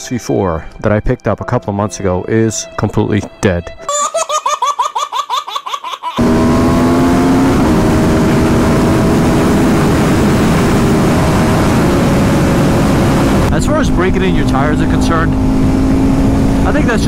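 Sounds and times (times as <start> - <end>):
baby laughing: 3.8 - 6.2
motorcycle engine at speed: 6.2 - 17.0
wind rush: 6.5 - 17.0.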